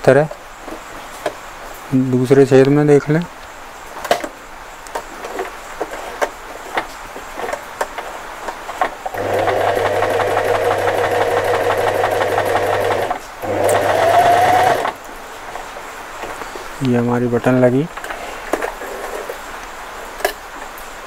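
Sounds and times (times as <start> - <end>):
sewing machine running: 9.1 - 15.0.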